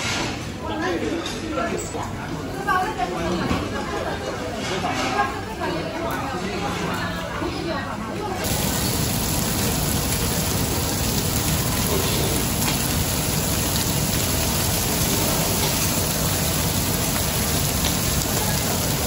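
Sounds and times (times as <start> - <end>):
meat sizzling on a griddle: 8.4 - 19.0.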